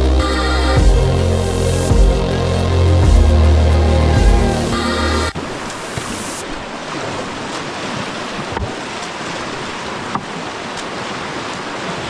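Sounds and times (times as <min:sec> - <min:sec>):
whitewater river rushing: 0:02.7 - 0:12.0.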